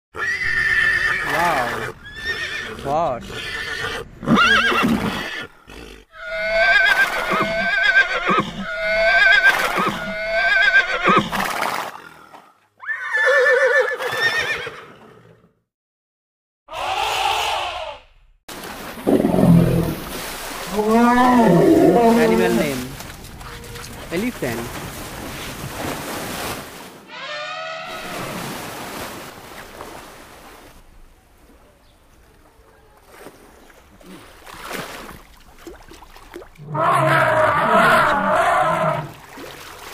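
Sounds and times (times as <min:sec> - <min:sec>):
horse whinnying: 0:00.2 - 0:11.5, 0:12.8 - 0:15.4, 0:16.7 - 0:18.0, 0:20.7 - 0:22.8, 0:36.6 - 0:39.2
rushing water noise: 0:18.5 - 0:27.2, 0:27.8 - 0:31.0, 0:38.0 - 0:39.9
elephant trumpeting: 0:20.7 - 0:22.8, 0:27.1 - 0:28.4, 0:36.7 - 0:39.1.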